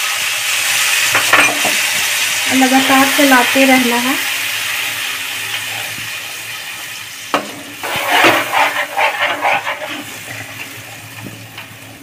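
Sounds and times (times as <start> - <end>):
faint sizzle: 0.0 - 12.0
spatula scraping in a pan: 7.3 - 11.7.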